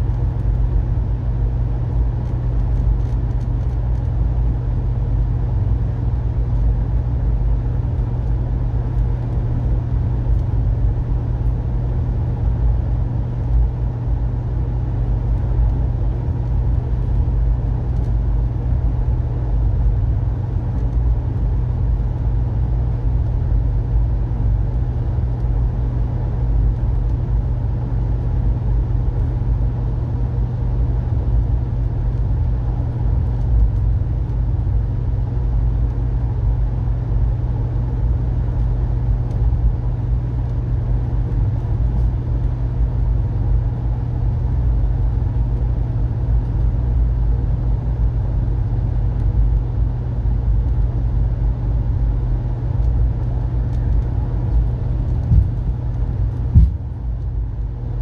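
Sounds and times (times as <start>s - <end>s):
low hum: 0.0s - 58.0s
train rumble: 53.7s - 57.1s.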